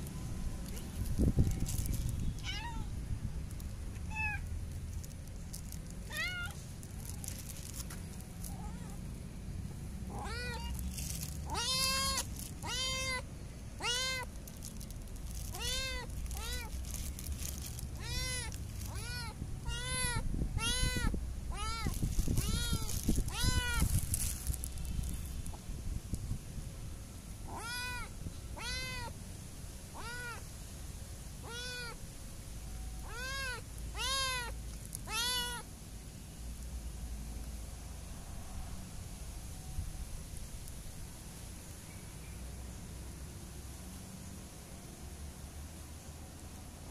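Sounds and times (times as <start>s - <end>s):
cat meowing: 2.4s - 2.9s, 4.1s - 4.5s, 6.1s - 7.2s, 10.1s - 10.8s, 11.4s - 13.2s, 13.8s - 14.3s, 15.5s - 16.7s, 18.0s - 23.9s, 27.5s - 29.1s, 30.0s - 30.4s, 31.4s - 32.0s, 33.0s - 35.7s.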